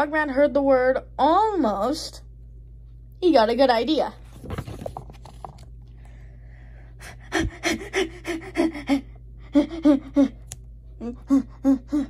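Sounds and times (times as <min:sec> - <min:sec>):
child making vocal sounds: 0:11.0 - 0:12.0.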